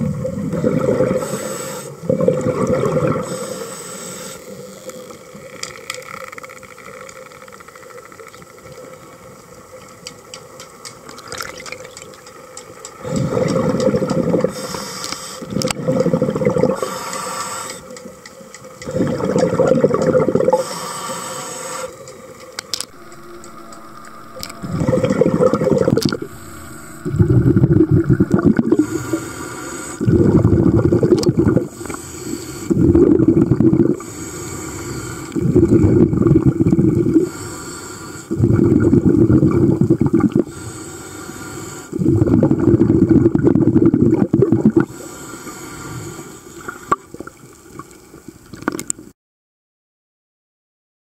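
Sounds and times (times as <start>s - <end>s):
bubbling regulator exhalations: 0.0s - 3.5s, 13.0s - 17.2s, 18.8s - 21.9s, 22.9s - 34.4s, 35.0s - 37.4s, 38.3s - 40.6s, 42.0s - 44.9s
regulator inhalation hiss: 1.1s - 2.0s, 3.2s - 4.7s, 14.5s - 15.5s, 16.7s - 17.9s, 20.5s - 22.1s, 22.9s - 30.1s, 31.6s - 32.8s, 34.0s - 35.4s, 37.1s - 38.4s, 40.5s - 42.0s, 44.9s - 46.8s.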